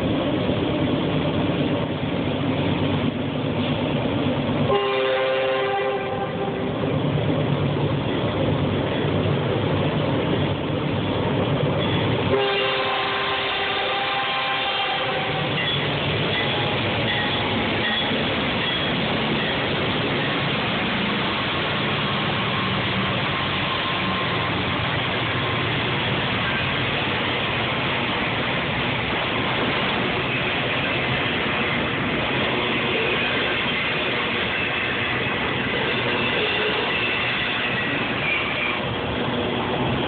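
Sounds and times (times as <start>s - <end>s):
train cars rolling on rails: 0.0s - 40.0s
locomotive horn: 4.7s - 6.8s, 12.3s - 18.1s, 35.9s - 38.9s.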